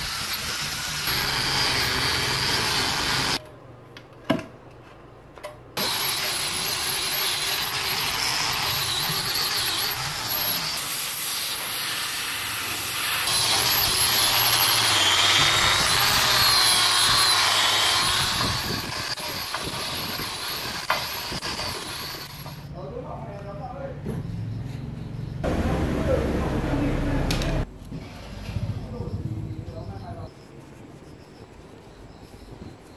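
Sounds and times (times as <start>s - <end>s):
angle grinder grinding metal: 0.0s - 3.4s, 5.8s - 22.7s.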